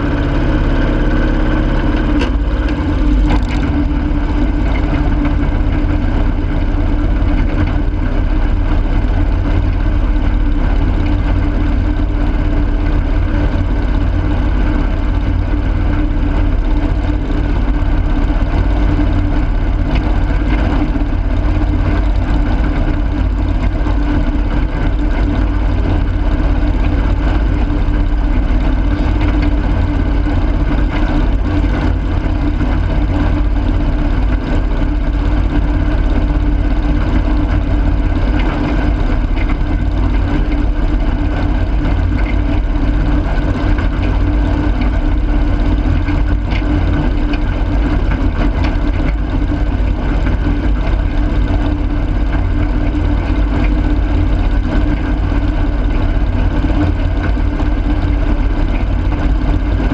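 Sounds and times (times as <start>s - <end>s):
garden tractor engine running: 0.0s - 59.9s.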